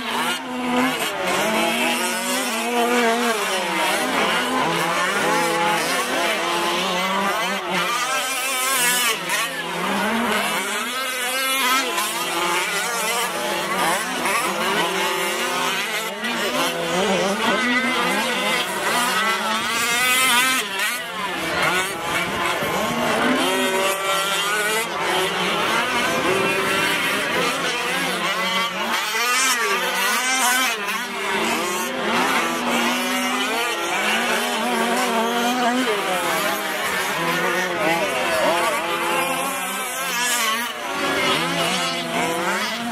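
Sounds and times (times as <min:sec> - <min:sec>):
radio-controlled truck engines revving: 0:00.0 - 0:42.9.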